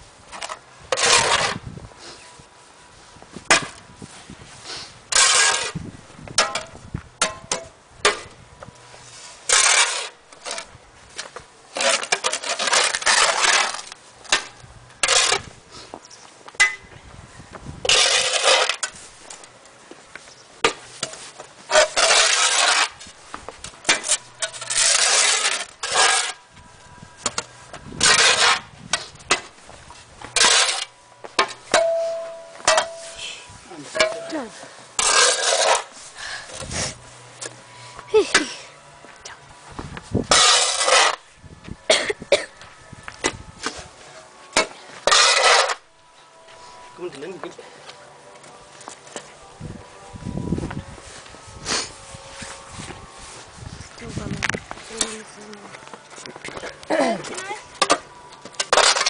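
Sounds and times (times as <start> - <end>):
snow shovels scraping: 0.8 - 2.3, 4.0 - 5.8, 8.9 - 14.4, 17.9 - 19.4, 20.6 - 26.5, 27.9 - 38.8, 40.1 - 41.3, 43.6 - 45.9, 51.0 - 55.5, 58.6 - 59.0.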